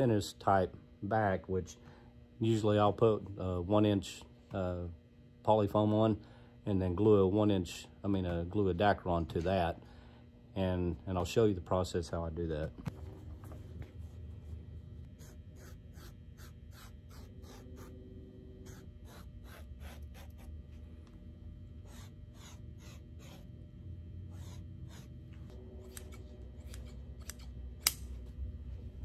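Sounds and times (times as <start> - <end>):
scratchy cutting of foam: 15.1 - 18.0, 18.6 - 20.5, 21.8 - 23.5
sharp click: 25.9 - 28.1.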